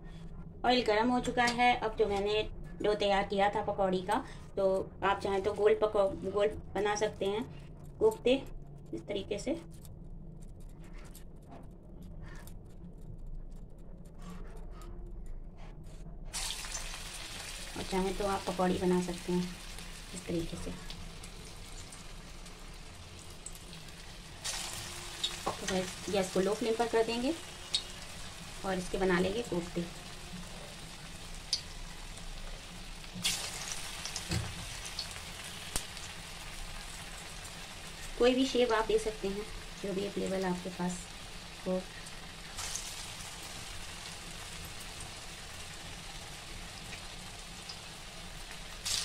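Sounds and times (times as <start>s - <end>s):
low steady hum: 0.0s - 49.0s
food sizzling in hot oil: 16.3s - 49.0s.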